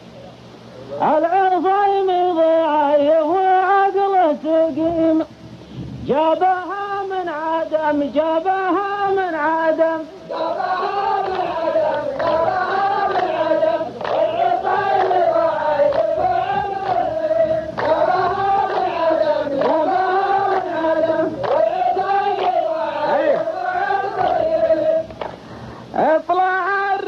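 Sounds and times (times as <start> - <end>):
men chanting in unison: 6.1 - 25.2, 25.8 - 27.0.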